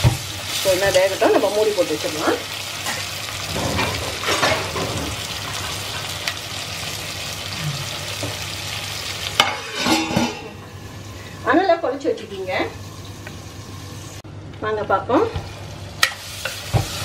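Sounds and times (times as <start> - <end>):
vegetables sizzling in oil: 0.0 - 14.2, 15.2 - 17.0
metal lid clanking on pot: 9.4 - 10.6.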